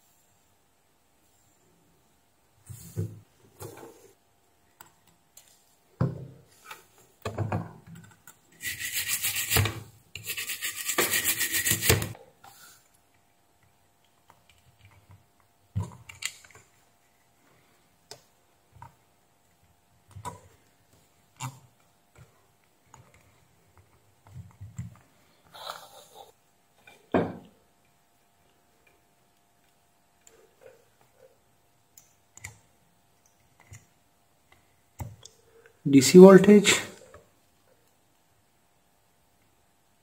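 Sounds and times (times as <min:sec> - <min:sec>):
fast scrubbing: 0:08.6 - 0:09.6, 0:10.2 - 0:12.2.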